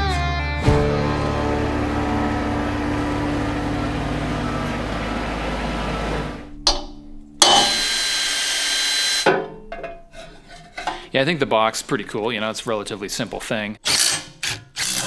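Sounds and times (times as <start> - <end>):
tractor engine running: 0.7 - 8.0
cordless drill running: 7.4 - 9.3.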